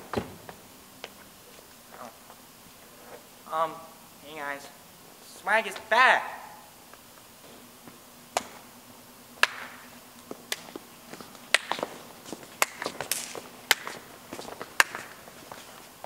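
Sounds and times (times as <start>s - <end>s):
footsteps on hard floor: 10.3s - 16.0s.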